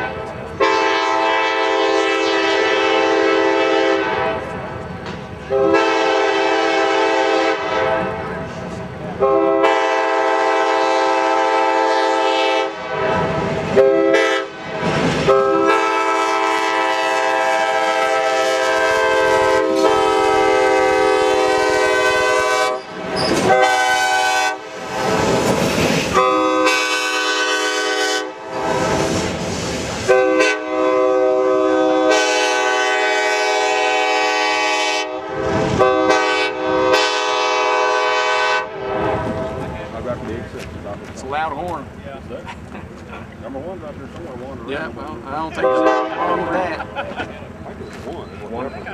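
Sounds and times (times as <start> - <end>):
locomotive air horn blasts: 0.1 - 4.5, 5.5 - 8.5, 9.2 - 25.2, 26.1 - 29.2, 30.0 - 39.6, 45.6 - 46.6
train wheels clattering: 4.4 - 5.6, 22.7 - 24.1, 24.7 - 26.3.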